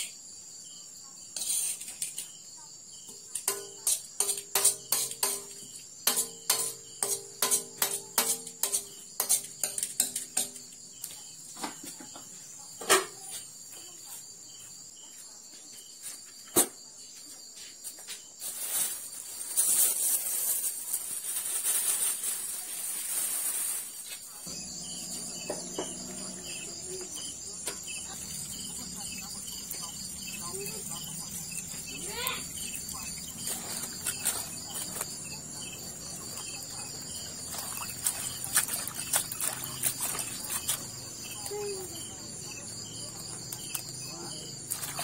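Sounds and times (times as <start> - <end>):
crickets chirping: 0.0 - 45.0
metal spatula scraping wok: 1.4 - 2.2, 3.4 - 10.6.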